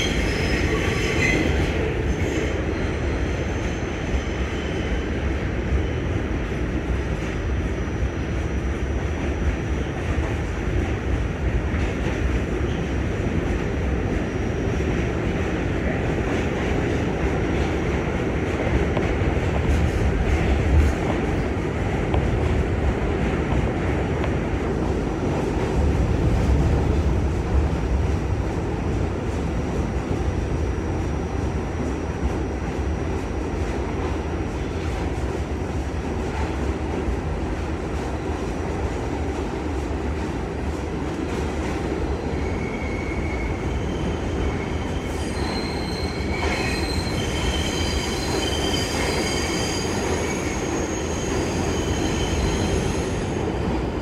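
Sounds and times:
train wheels rumbling on track: 0.0s - 54.0s
high-pitched wheel squeal: 42.4s - 53.4s.

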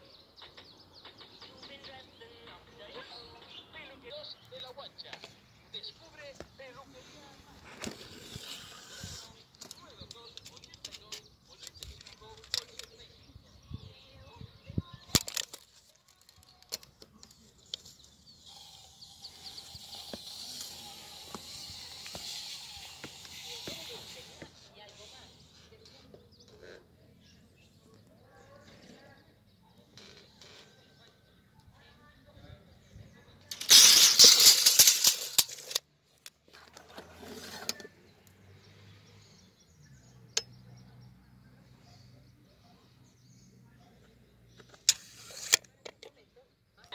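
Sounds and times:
tape blade hissing along cardboard: 7.7s - 9.5s, 18.0s - 25.6s, 44.8s - 45.7s
tape measure clicks and knocks: 15.1s - 18.8s, 19.4s - 24.5s, 33.5s - 36.8s, 44.6s - 46.1s.

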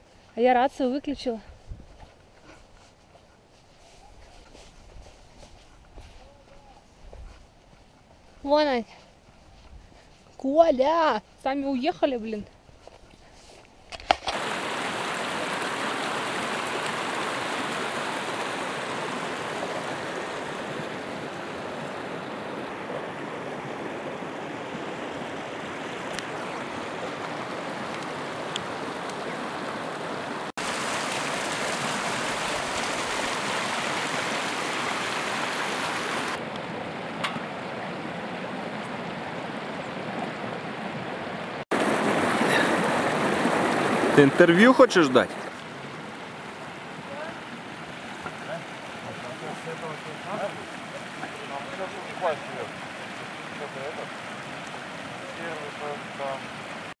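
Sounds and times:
stream rushing over rocks: 14.3s - 57.0s.

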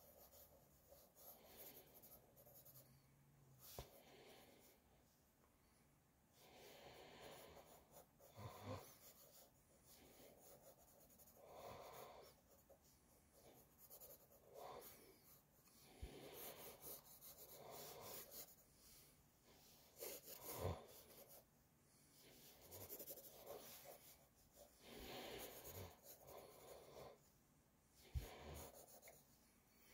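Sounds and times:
pencil scratching on paper: 0.0s - 2.9s, 3.6s - 4.0s, 7.2s - 18.7s, 19.8s - 21.5s, 22.2s - 27.2s, 28.1s - 29.4s.

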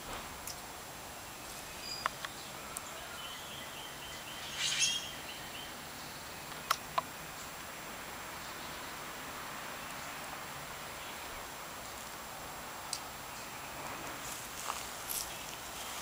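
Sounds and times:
faint bird chirping: 1.2s - 7.6s, 8.2s - 10.3s
sharp clicks: 2.0s - 2.4s, 6.5s - 7.1s.

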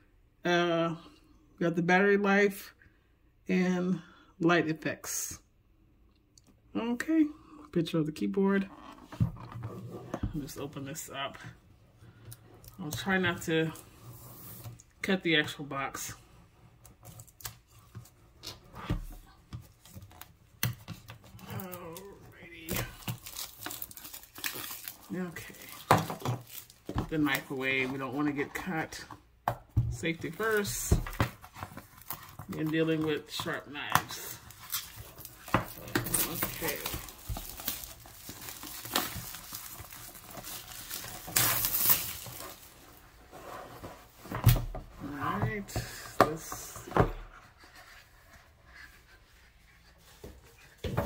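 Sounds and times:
plastic film crinkling: 21.4s - 27.9s, 31.7s - 43.0s.

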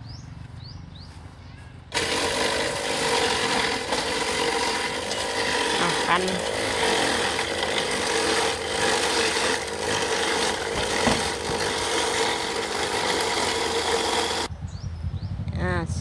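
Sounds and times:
ice shaver rasping: 1.9s - 14.5s
motor hum: 1.9s - 14.5s.

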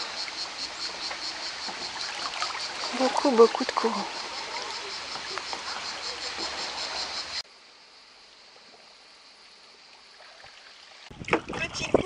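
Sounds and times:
river current rushing: 0.0s - 7.4s
faint steady hiss: 0.0s - 11.3s
insect chirping: 0.0s - 12.0s.

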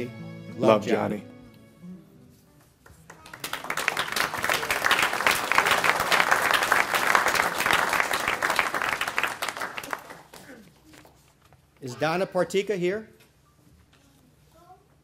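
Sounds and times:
audience applauding: 3.1s - 10.5s.

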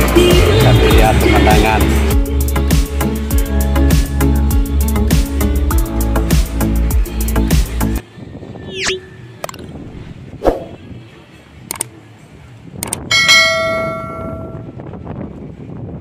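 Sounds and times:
quick swooping glide: 8.7s - 9.1s, 10.0s - 10.8s
sharp mouse clicks: 11.7s - 11.9s, 12.8s - 13.0s
notification bell ringing: 13.1s - 14.7s.

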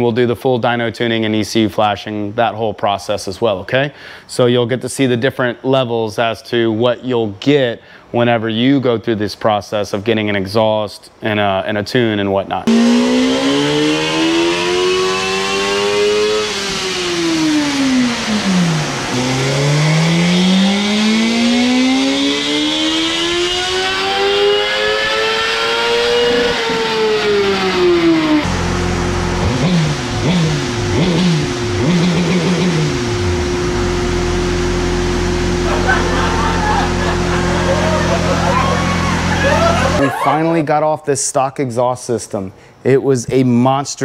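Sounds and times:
motorcycle engine revving: 12.7s - 40.0s.

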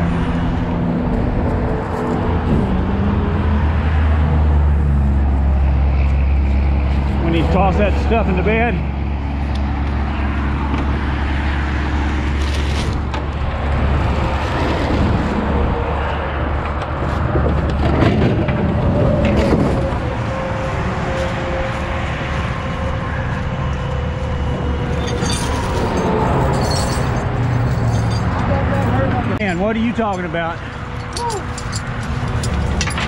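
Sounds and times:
highway traffic noise: 0.0s - 33.0s
metal chain clinking: 24.9s - 29.0s, 31.0s - 33.0s.

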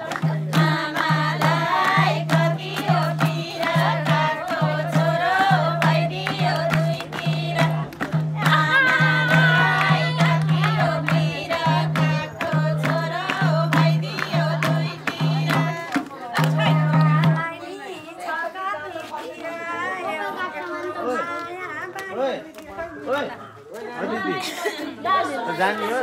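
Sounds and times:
hand clapping: 0.0s - 17.4s
hand drum beating: 0.0s - 17.6s
women singing folk song: 0.0s - 20.5s.

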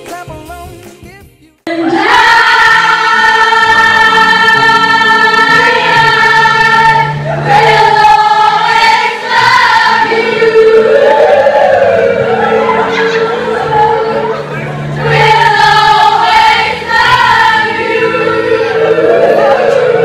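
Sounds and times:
group of voices singing: 1.6s - 20.0s.

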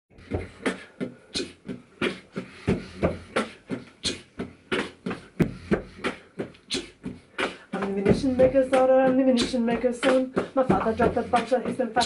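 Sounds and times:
percussion beat: 0.2s - 12.0s.

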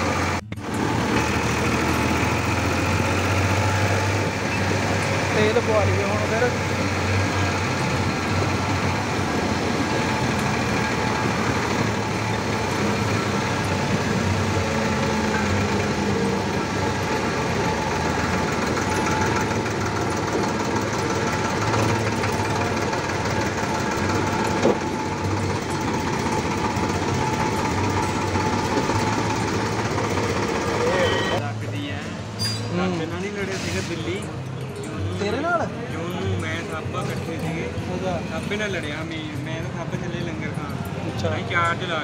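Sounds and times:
tractor diesel engine running: 0.0s - 31.6s.

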